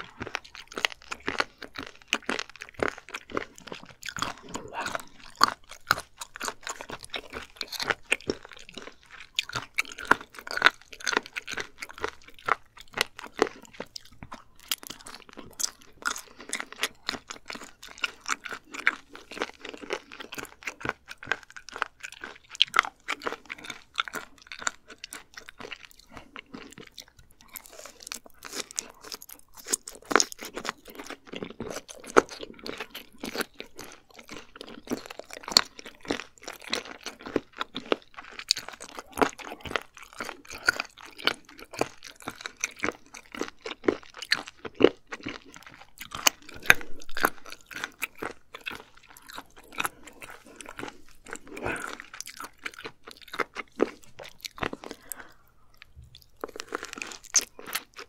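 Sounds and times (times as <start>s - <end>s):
close chewing with crunches: 0.0s - 58.0s.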